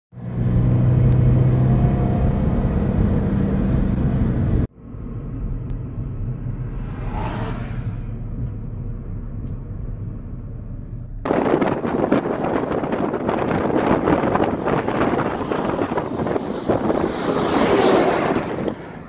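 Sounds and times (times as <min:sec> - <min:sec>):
road and engine drone in car: 0:00.1 - 0:19.0
rumble of traffic and wind: 0:00.1 - 0:19.0
brief rushing sound: 0:05.9 - 0:08.8.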